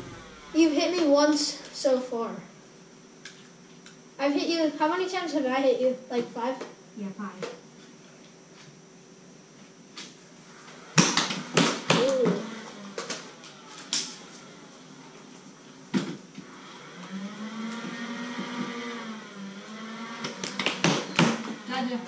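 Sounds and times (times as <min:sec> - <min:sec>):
low hum rising and falling: 0:00.0 - 0:03.1, 0:10.2 - 0:22.0.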